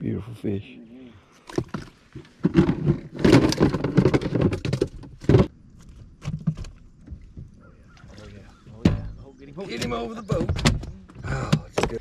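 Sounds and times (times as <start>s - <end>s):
rattling and knocking in boat: 1.5s - 5.5s, 8.7s - 12.0s.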